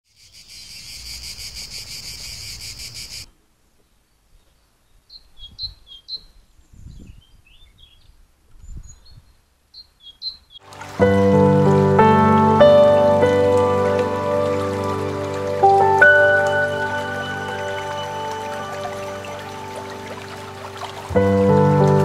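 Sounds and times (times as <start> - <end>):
insect pulsing trill: 0.1 - 3.3
songbird calling and twittering: 0.1 - 3.3, 4.3 - 10.6.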